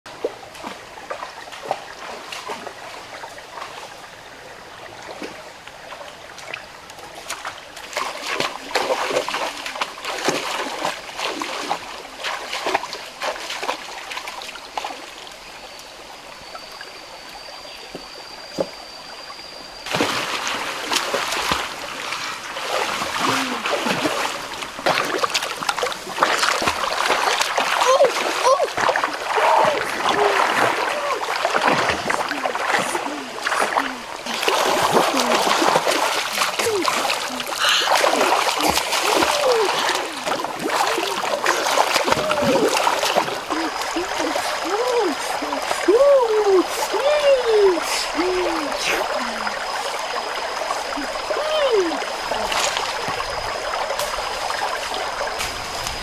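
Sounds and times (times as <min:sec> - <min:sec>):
feet splashing through stream: 0:00.1 - 0:04.0, 0:04.9 - 0:15.4, 0:19.8 - 0:56.0
churning water from swimming: 0:05.0 - 0:15.2, 0:19.8 - 0:56.0
thin high tone: 0:15.5 - 0:21.4.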